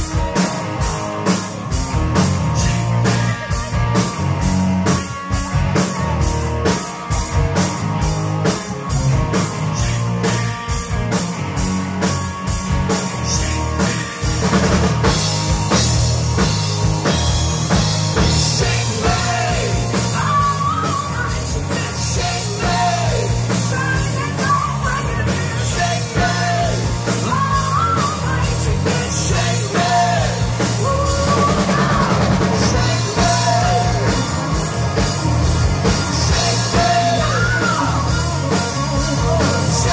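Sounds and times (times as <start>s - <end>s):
bass guitar: 0.0s - 39.9s
distorted electric guitars: 0.0s - 39.9s
drum kit beat: 0.0s - 39.9s
person singing lead vocal: 18.4s - 39.9s.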